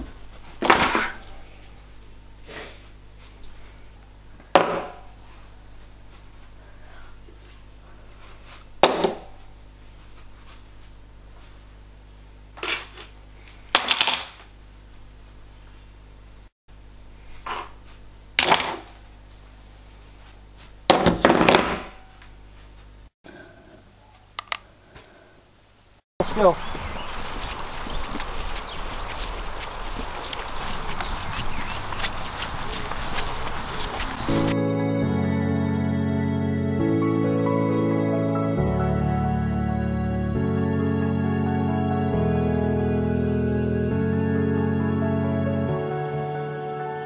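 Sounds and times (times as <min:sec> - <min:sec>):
knock on desk: 0:08.8 - 0:09.2.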